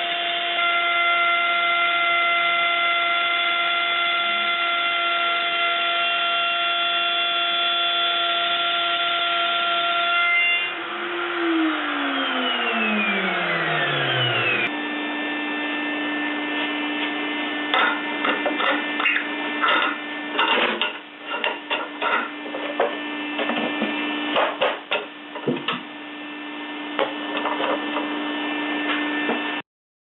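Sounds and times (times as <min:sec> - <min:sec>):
spindle motor whine winding down: 0:00.0 - 0:20.3.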